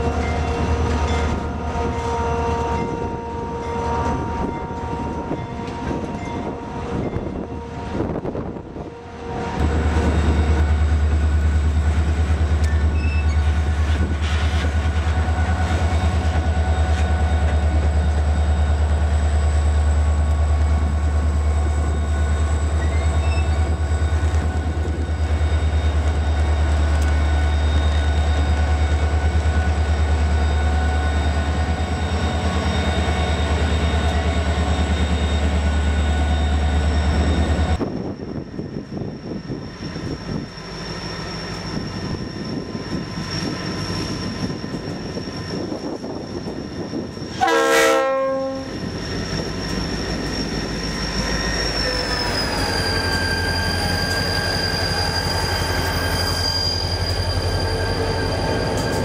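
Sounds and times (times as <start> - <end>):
train rolling past rumble: 0.0 - 59.0
faint squeal tones: 12.6 - 47.4, 48.5 - 59.0.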